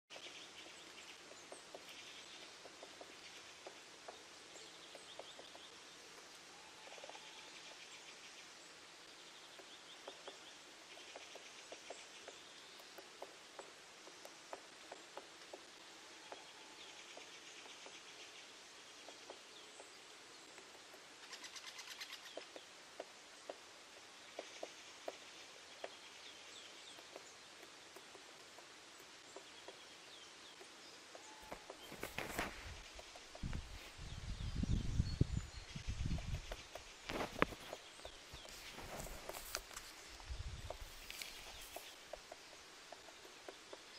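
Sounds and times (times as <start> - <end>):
birds chirping: 0.1 - 43.9.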